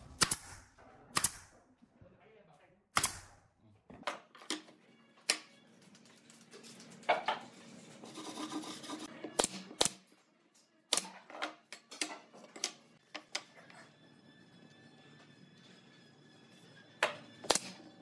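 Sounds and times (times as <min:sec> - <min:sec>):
nail gun firing: 0:00.1 - 0:01.5, 0:03.0 - 0:03.4, 0:09.4 - 0:10.0, 0:17.5 - 0:17.8.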